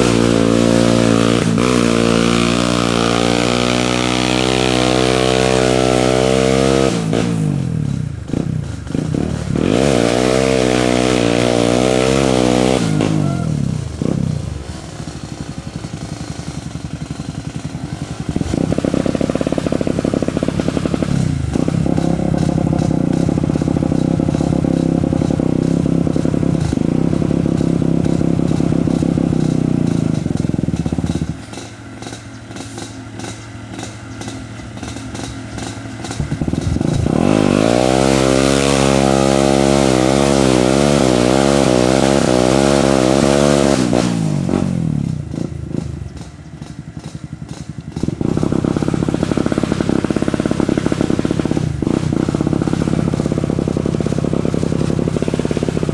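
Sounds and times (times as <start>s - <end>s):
quad bike engine revving: 0.0s - 55.9s.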